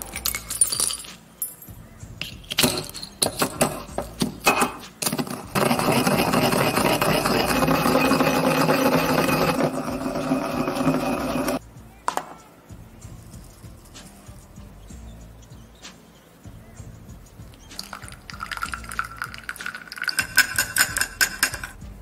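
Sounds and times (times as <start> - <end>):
metal pestle clinking in mortar: 0.0 - 11.6, 17.8 - 21.8
pestle grinding scrape: 2.2 - 11.6.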